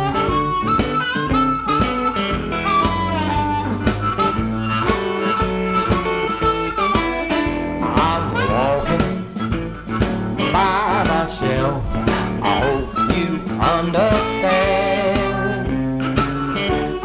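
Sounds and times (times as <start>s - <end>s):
amplified blues harmonica: 0.0s - 17.0s
guitar accompaniment: 0.0s - 17.0s
steady beat: 0.0s - 17.0s.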